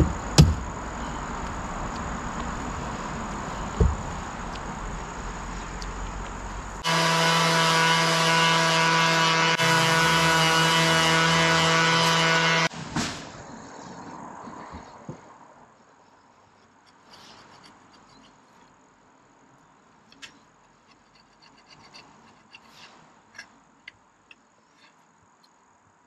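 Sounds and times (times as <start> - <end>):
crickets chirping: 0.0 - 8.1, 13.3 - 26.0
power sander whining: 6.8 - 12.7.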